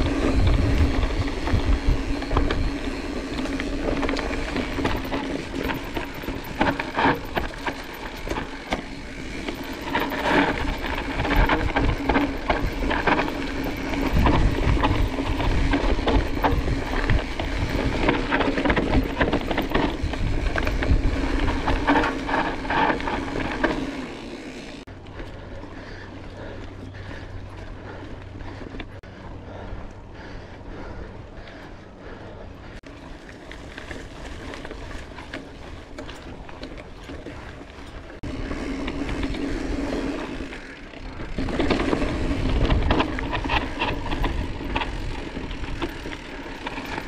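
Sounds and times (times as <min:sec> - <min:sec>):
wind rumble on microphone: 0:00.0 - 0:08.5, 0:09.2 - 0:23.7, 0:41.2 - 0:47.0
bike rattling and knocking: 0:00.0 - 0:47.0
bike tyre noise on dirt: 0:00.0 - 0:47.0.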